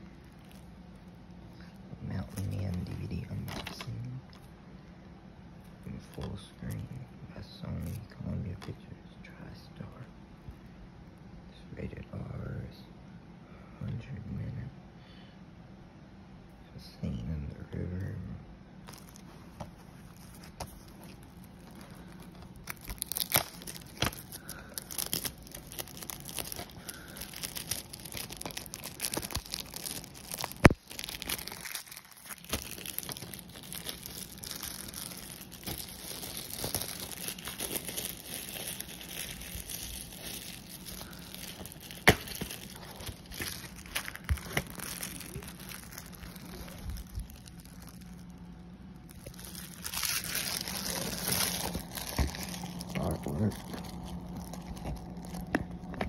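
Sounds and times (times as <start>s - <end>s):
shrink wrap crinkling: 0.0s - 4.5s, 18.8s - 56.0s.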